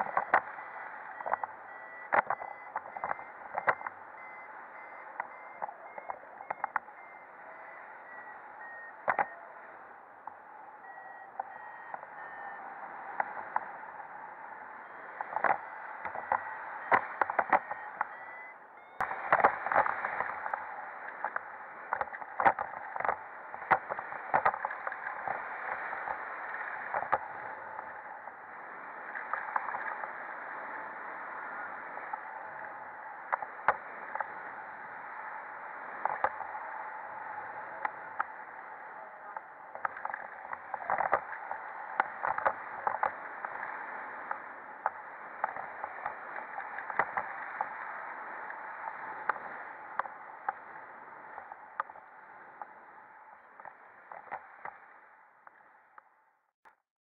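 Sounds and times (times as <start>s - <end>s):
wind rushing over camera: 0.0s - 56.1s
short beeps falling in pitch: 0.1s - 9.7s, 10.7s - 12.7s, 15.6s - 19.1s.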